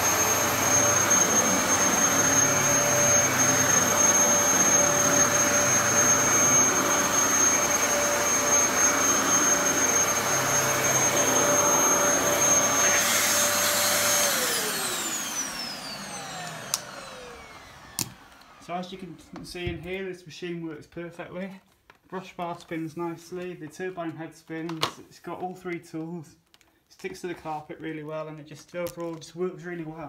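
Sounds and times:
vacuum cleaner motor whine: 0:00.0 - 0:19.8.

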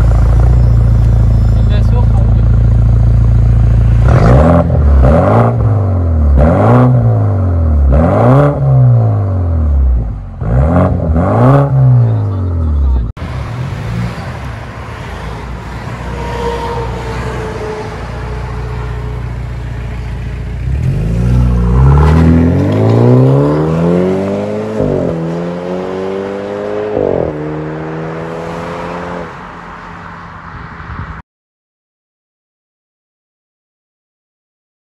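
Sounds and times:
car engine revving and accelerating: 0:02.8 - 0:14.4, 0:20.5 - 0:29.5.

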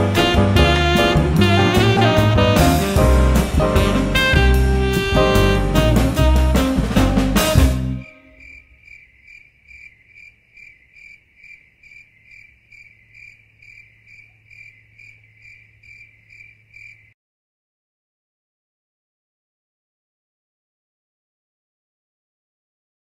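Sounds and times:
outro music: 0:00.0 - 0:08.4
cricket chirping: 0:08.0 - 0:17.2.

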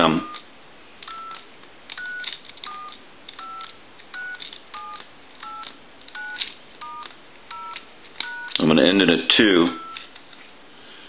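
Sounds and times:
two-tone keypad beeps: 0:00.2 - 0:00.4, 0:01.1 - 0:01.4, 0:02.0 - 0:08.6, 0:09.8 - 0:10.1.

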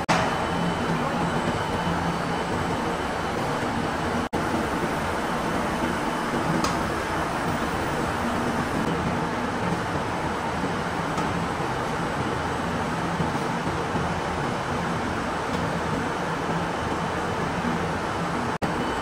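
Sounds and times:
spinning mill machinery running: 0:00.0 - 0:19.0.

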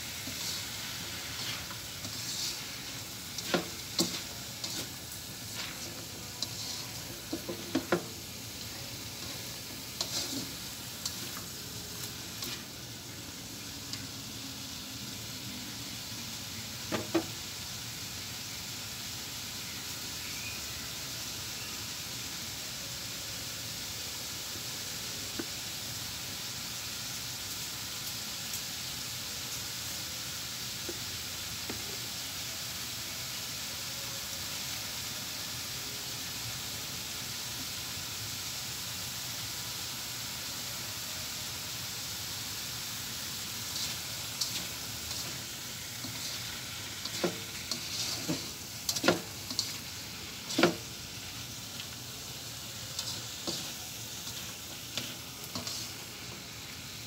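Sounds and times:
vegetables sizzling in oil: 0:00.0 - 0:57.0
spatula scraping and knocking pan: 0:00.2 - 0:08.2, 0:09.2 - 0:11.4, 0:43.7 - 0:50.9.

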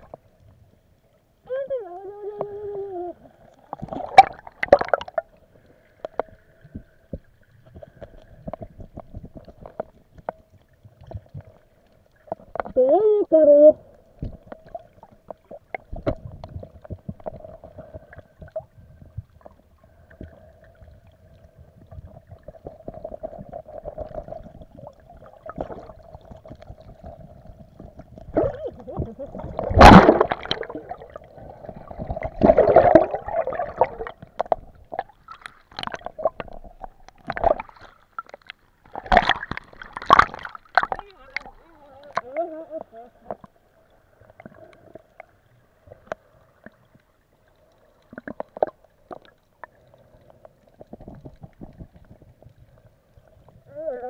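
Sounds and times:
water gurgling and sloshing: 0:00.0 - 0:54.0
underwater crackling clicks: 0:34.0 - 0:42.3, 0:45.9 - 0:52.6.

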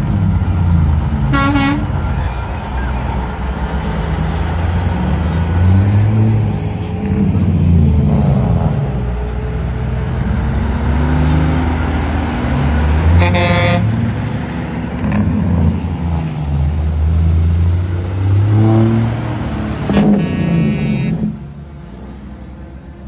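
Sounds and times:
truck diesel engines passing: 0:00.0 - 0:23.0
air horn blast: 0:01.3 - 0:02.0, 0:13.1 - 0:14.0, 0:19.9 - 0:21.4.

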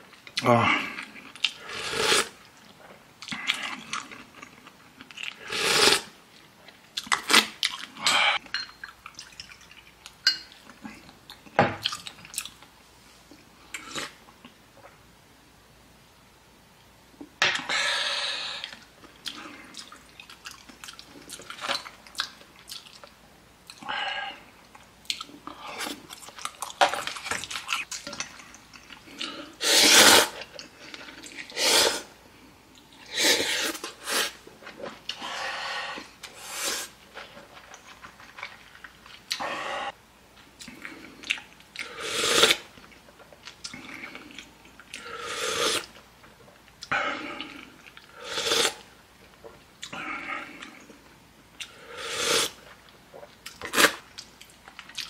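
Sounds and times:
chewing food: 0:18.6 - 0:23.8, 0:52.6 - 0:55.0.

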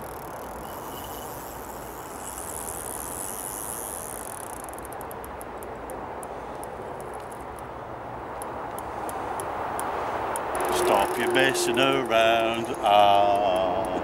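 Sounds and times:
fishing reel clicking: 0:00.0 - 0:07.6, 0:10.6 - 0:14.0
high thin buzz: 0:00.4 - 0:04.7, 0:10.5 - 0:13.9.

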